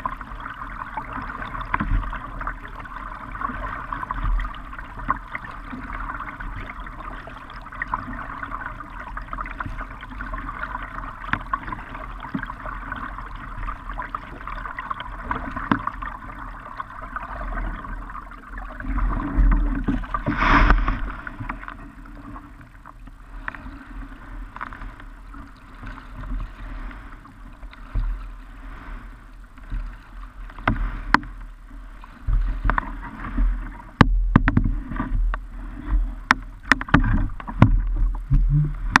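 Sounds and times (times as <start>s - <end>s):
paddle strokes: 0.0s - 39.0s
water splashing along hull: 0.0s - 39.0s
kayak bow knocking on bank: 34.0s - 34.9s, 36.3s - 39.0s
low rumble: 37.1s - 39.0s.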